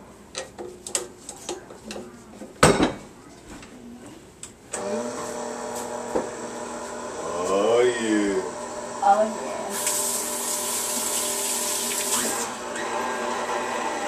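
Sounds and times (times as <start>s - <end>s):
stand mixer motor running: 8.0s - 9.0s, 9.9s - 14.0s.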